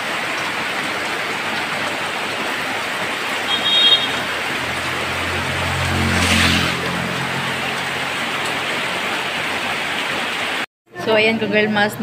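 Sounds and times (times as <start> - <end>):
heavy rain pouring: 0.0 - 10.7
low engine hum: 4.3 - 9.8.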